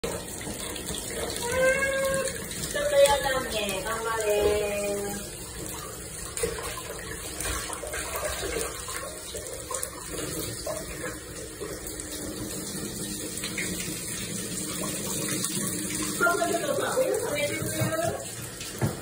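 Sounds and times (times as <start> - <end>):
shower spray splashing: 0.4 - 11.2.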